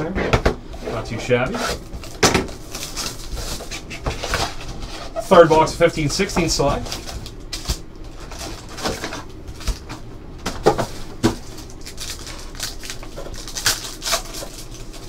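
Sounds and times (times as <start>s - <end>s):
foil wrappers crinkling and tearing: 1.8s - 5.8s, 6.8s - 10.0s, 10.8s - 15.0s.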